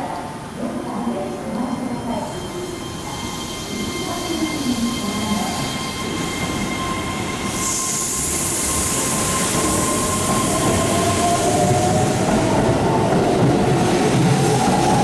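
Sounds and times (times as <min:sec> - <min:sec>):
hiss: 0:07.5 - 0:10.6.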